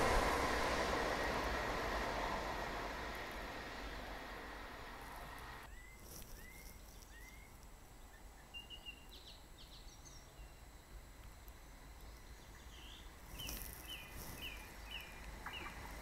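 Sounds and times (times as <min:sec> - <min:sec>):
train passing: 0:00.0 - 0:06.5, 0:11.8 - 0:16.0
birds chirping: 0:05.1 - 0:10.8, 0:11.5 - 0:16.0.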